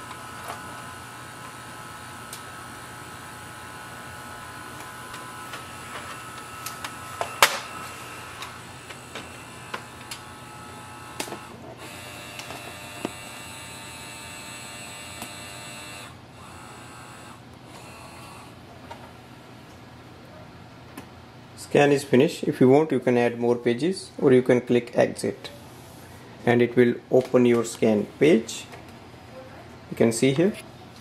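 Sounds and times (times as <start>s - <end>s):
document feeder motor whine: 0.0s - 19.3s.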